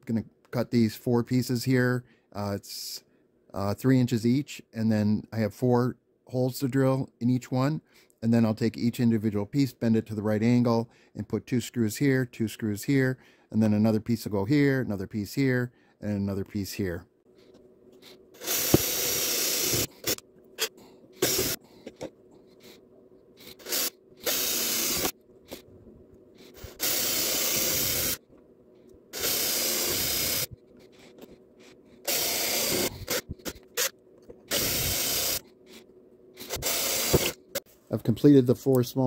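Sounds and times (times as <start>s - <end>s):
cordless drill boring through metal: 18.4s - 21.6s, 23.4s - 25.2s, 26.6s - 28.2s, 29.2s - 30.5s, 32.1s - 33.9s, 34.5s - 35.4s, 36.4s - 37.4s.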